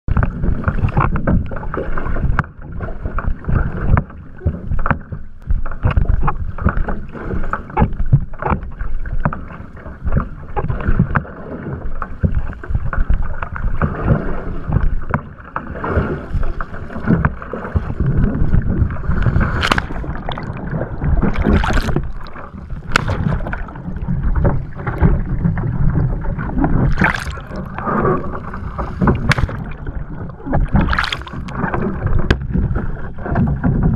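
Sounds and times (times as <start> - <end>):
water rushing along a canoe hull: 0.0 - 33.9
paddle splashing: 0.1 - 33.9
canoe capsizing splash: 8.8 - 33.9.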